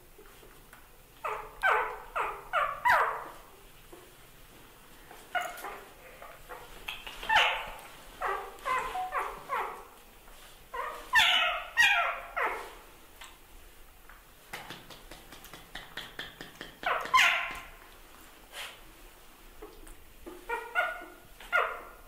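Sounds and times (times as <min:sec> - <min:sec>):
young dog yelping and whining: 0:01.2 - 0:03.4, 0:05.3 - 0:06.6, 0:07.3 - 0:09.9, 0:10.7 - 0:12.8, 0:16.8 - 0:17.8, 0:20.5 - 0:22.0.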